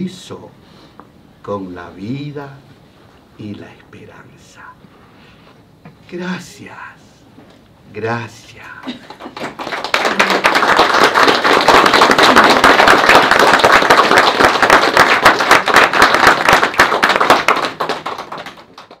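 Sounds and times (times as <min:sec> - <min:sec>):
audience applauding: 0:09.1 - 0:19.0.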